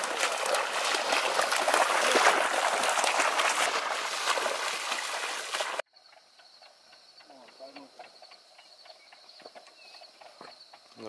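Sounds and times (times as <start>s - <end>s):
wading through shallow water: 0.0s - 5.8s.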